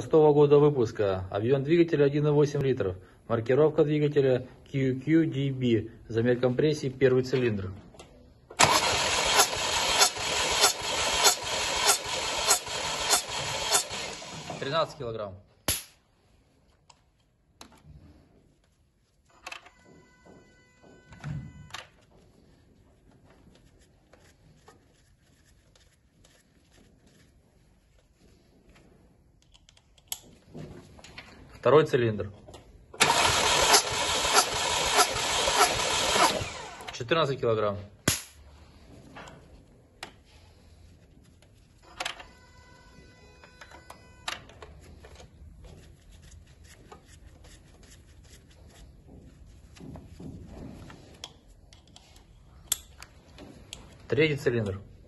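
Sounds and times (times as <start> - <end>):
rustling: 22.0 - 29.4
tools clicking: 29.4 - 30.3, 51.2 - 53.1
steady ringing tone: 42.2 - 44.3.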